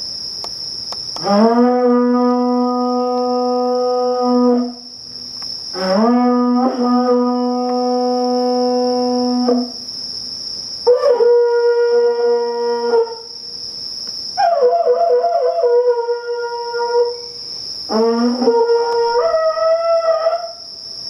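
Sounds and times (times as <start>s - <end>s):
conch-shell trumpet blasts: 5.8s - 9.7s.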